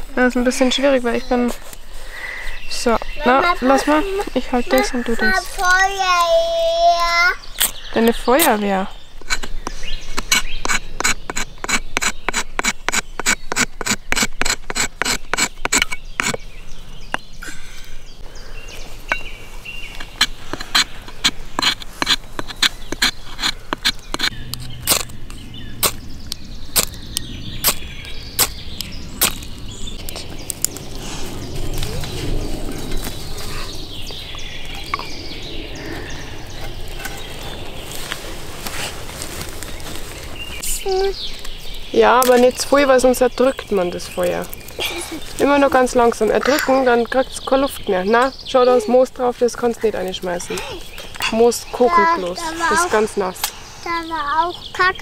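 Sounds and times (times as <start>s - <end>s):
ferro rod scraping: 19.9s - 26.0s, 36.1s - 40.4s.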